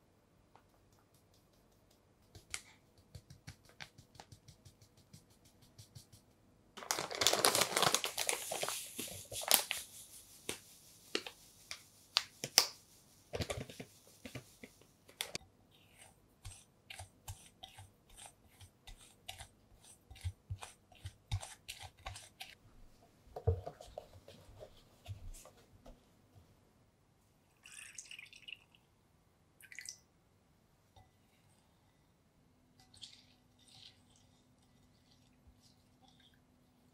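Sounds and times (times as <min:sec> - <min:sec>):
spatula stirring in glass bowl: 0:15.7 - 0:22.6.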